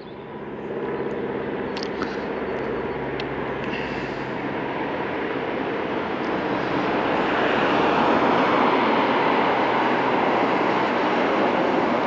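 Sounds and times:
steady mechanical hum: 0.0 - 12.0
rushing noise: 5.8 - 12.0.

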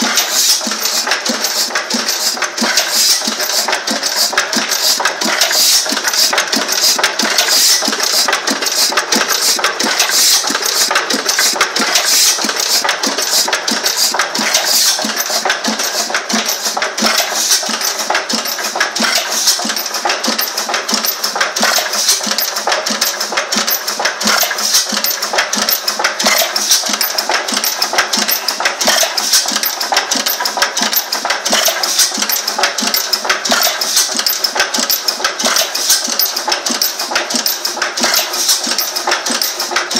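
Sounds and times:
stationary engine knocking: 0.0 - 39.9.

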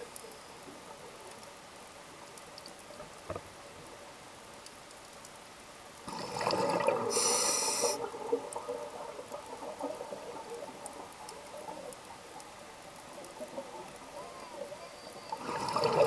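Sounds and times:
crackle of small clicks: 0.0 - 16.0
underwater bubbles burbling: 6.1 - 16.0
short sharp hiss: 7.1 - 8.0.

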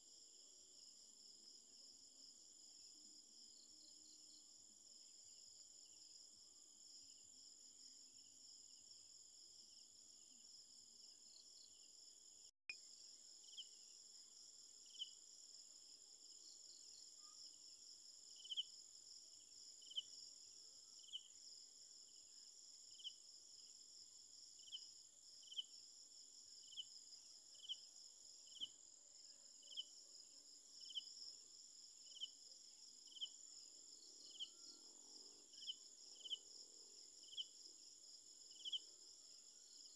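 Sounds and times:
short insect chirp: 16.3 - 23.8, 26.5 - 28.8, 29.5 - 39.9.

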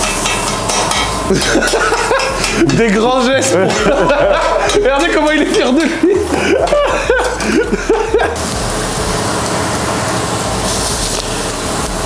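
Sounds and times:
meat sizzling on a griddle: 0.0 - 12.0
man laughing: 1.3 - 8.4.

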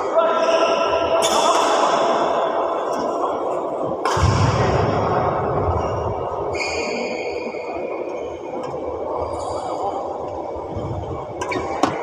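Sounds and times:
echoing sports hall noise: 0.0 - 12.0.

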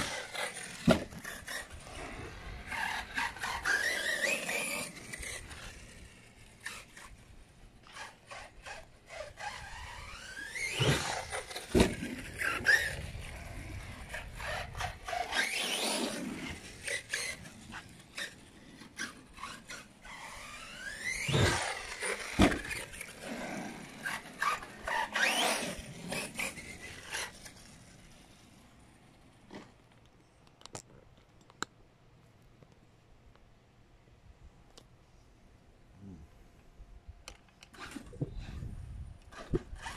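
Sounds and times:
toy truck knocks and thumps: 0.0 - 1.7, 10.7 - 12.9, 20.8 - 23.0, 39.3 - 39.9.

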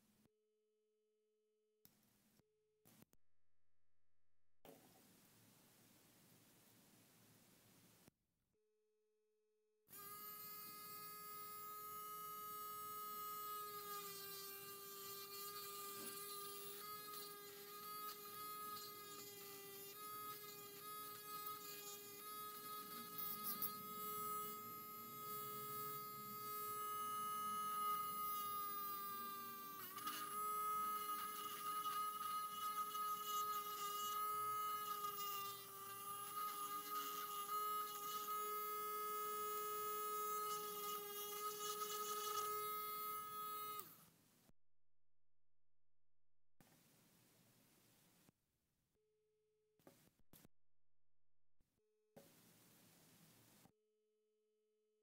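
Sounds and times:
electric screwdriver motor whining: 9.9 - 44.0.

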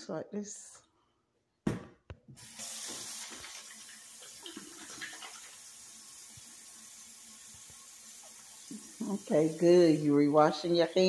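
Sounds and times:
tap water running into sink: 2.4 - 11.0.

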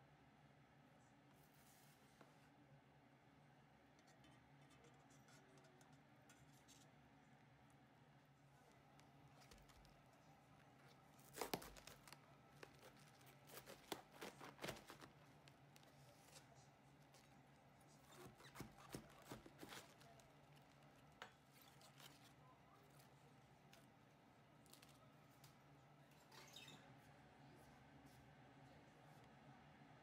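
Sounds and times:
knife crunching into cabbage: 11.2 - 15.1
cabbage leaves snapping and tearing: 11.2 - 15.2.

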